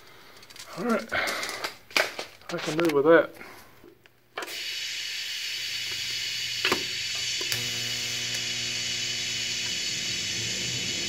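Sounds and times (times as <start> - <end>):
welder arc crackling: 4.4 - 11.0.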